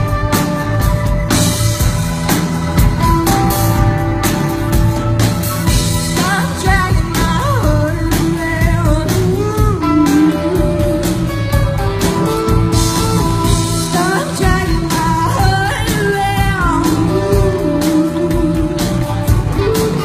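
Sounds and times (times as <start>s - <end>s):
live rock band playing: 0.0s - 20.0s
woman singing lead: 5.8s - 12.1s, 12.9s - 20.0s.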